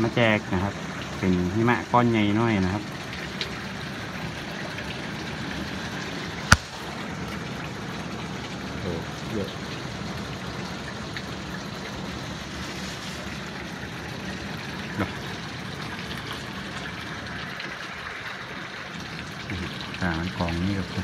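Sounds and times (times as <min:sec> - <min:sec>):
sharp tap: 0:06.5 - 0:06.8.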